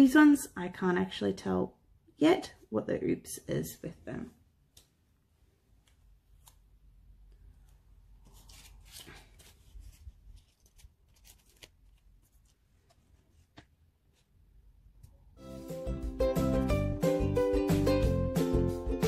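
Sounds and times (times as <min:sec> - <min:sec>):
paper rustling: 0:05.8 - 0:14.4.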